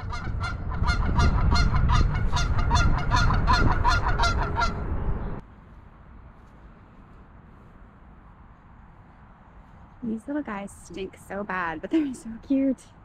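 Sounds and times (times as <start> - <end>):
geese honking: 0.0 - 4.9
heavy low rumble: 0.0 - 5.7
faint background noise: 5.4 - 13.0.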